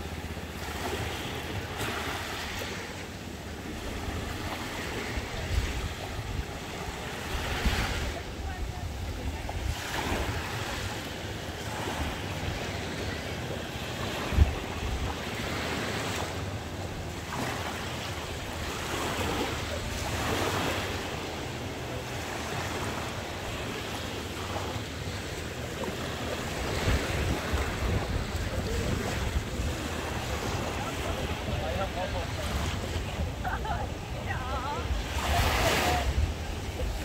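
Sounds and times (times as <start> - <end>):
small waves breaking on sand: 0.0 - 37.0
wind rumbling on microphone: 14.1 - 15.7, 26.3 - 37.0.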